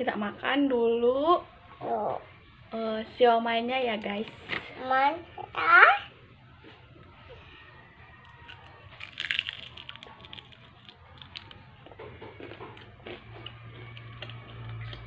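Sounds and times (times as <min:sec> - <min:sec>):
person crunching fried food: 0:08.2 - 0:15.0.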